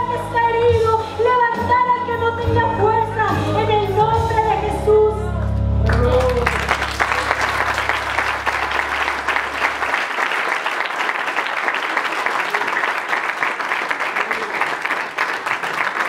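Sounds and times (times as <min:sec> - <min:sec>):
low held musical note: 0:04.6 - 0:09.9
congregation applauding: 0:05.8 - 0:16.0.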